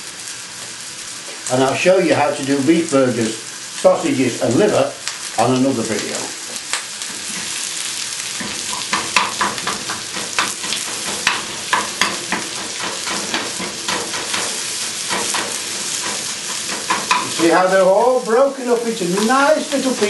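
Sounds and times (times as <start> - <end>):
onions sizzling in a frying pan: 0.0 - 20.0
wooden spoon scraping a pan: 7.1 - 17.6.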